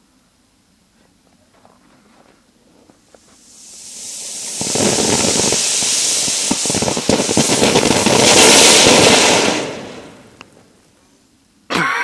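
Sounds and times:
firework fountain hissing and crackling: 0:02.4 - 0:11.2.

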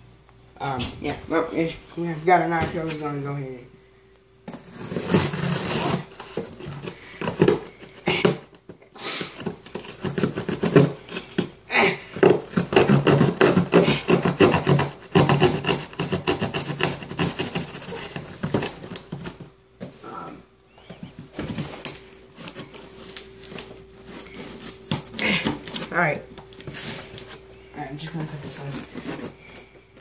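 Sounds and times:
knife slitting tape on cardboard: 0:04.5 - 0:08.5, 0:09.2 - 0:11.5, 0:12.2 - 0:19.1.

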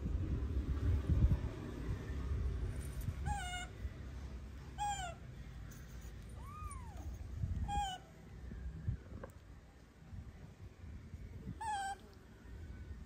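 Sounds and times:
kitten meowing: 0:06.4 - 0:07.1.

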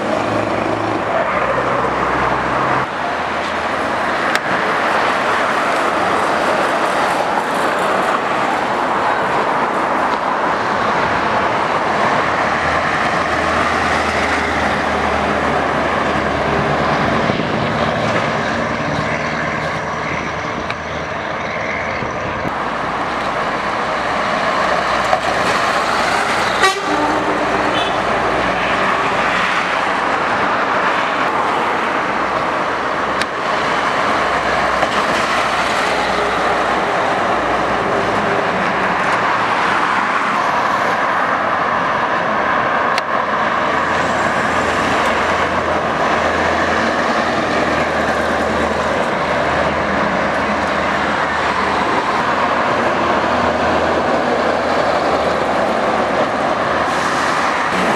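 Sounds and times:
trucks driving past: 0:00.0 - 0:57.9
loud open exhausts: 0:10.9 - 0:31.0, 0:42.2 - 0:57.9
truck horn toot: 0:26.5 - 0:28.1.

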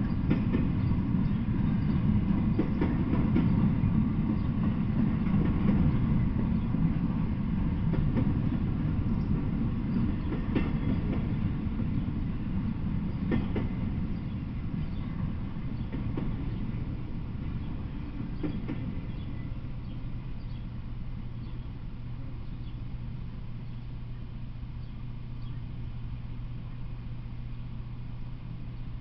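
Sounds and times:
train wheel clacks: 0:00.0 - 0:19.4
freight train rumbling: 0:00.0 - 0:29.0.

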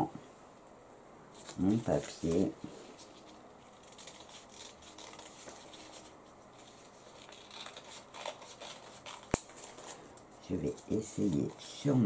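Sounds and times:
paper rustling: 0:01.3 - 0:12.0
scissors snipping paper: 0:03.7 - 0:06.1, 0:07.0 - 0:12.0.

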